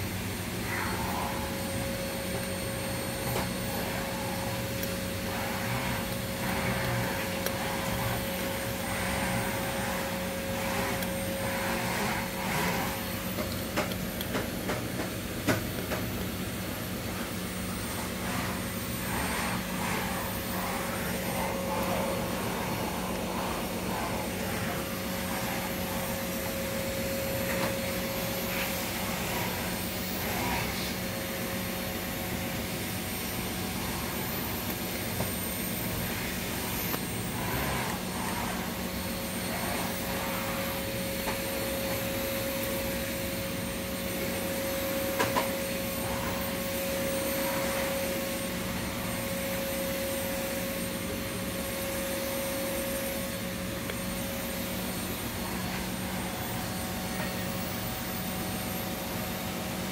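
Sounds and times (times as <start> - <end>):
vacuum cleaner motor droning: 0.0 - 59.9.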